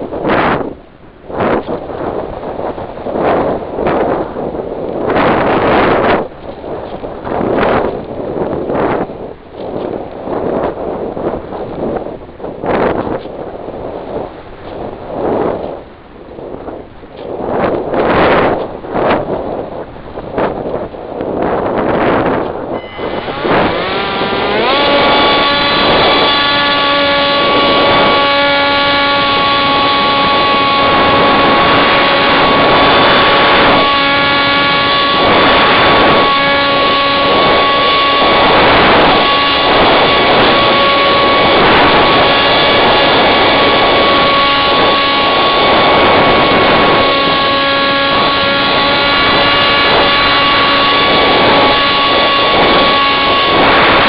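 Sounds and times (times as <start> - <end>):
wind rushing over microphone: 0.0 - 54.0
electric motor whine: 22.7 - 54.0.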